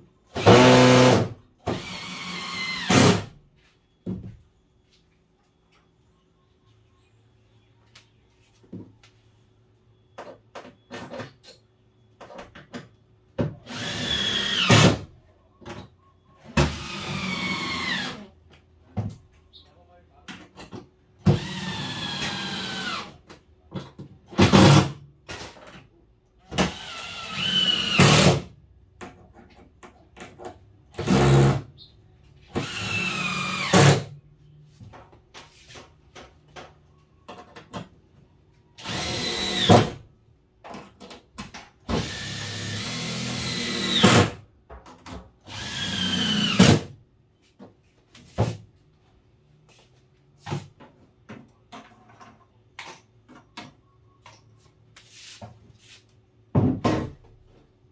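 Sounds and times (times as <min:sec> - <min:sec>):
cordless drill driving screws: 0:13.7 - 0:15.0, 0:26.6 - 0:28.4, 0:32.6 - 0:34.0, 0:38.8 - 0:39.9, 0:41.9 - 0:44.4, 0:45.5 - 0:46.8.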